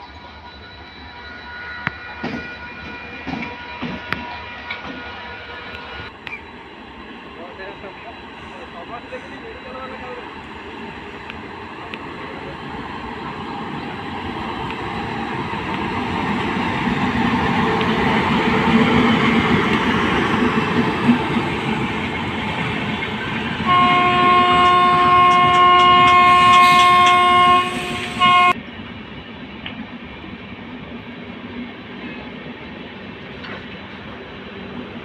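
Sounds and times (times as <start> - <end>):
train wheels rumbling on track: 1.8 - 35.0
locomotive horn: 23.6 - 28.6.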